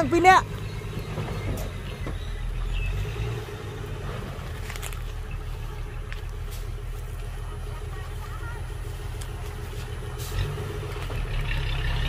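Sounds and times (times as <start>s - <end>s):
diesel truck engine humming: 0.0s - 12.0s.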